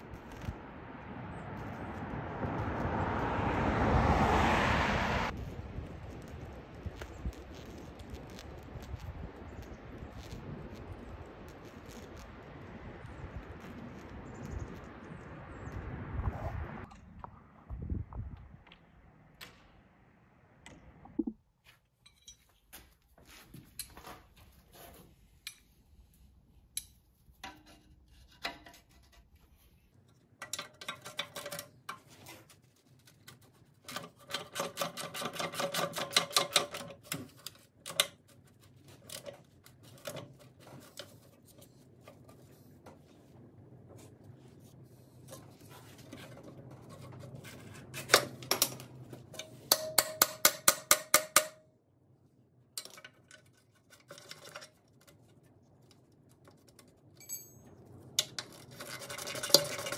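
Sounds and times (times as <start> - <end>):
wrench clinking on metal: 57.2 - 57.7.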